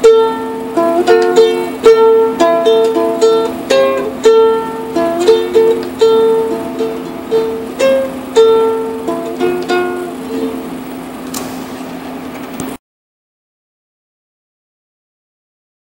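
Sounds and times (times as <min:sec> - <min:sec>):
plucked string instrument: 0:00.0 - 0:10.8
steady held tone: 0:00.0 - 0:12.0.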